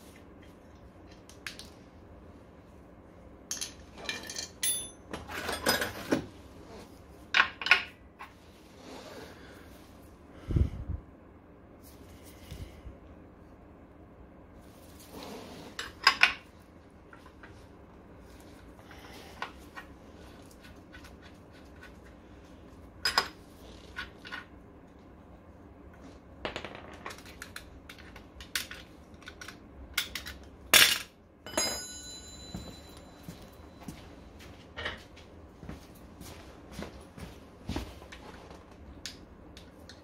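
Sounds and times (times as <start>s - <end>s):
metal tools clinking: 3.5s - 6.0s, 30.8s - 33.6s.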